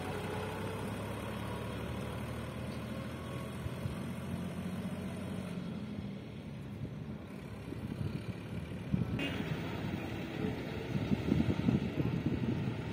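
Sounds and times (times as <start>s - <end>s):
tractor engine running: 0.0s - 12.9s.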